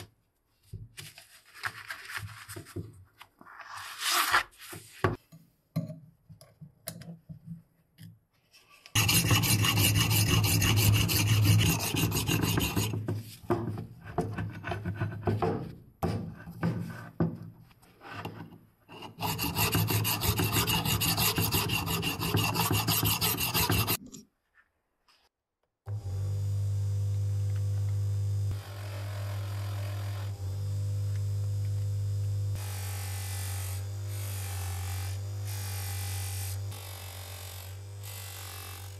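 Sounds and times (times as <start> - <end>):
polishing motor humming: 9.0 - 12.9, 25.9 - 36.8
sharpening stone rubbing on axe: 9.0 - 13.0, 18.9 - 24.0.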